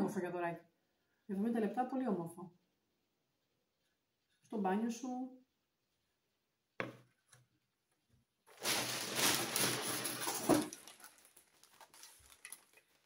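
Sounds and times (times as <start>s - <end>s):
plastic bag crinkling and rustling: 8.5s - 13.0s.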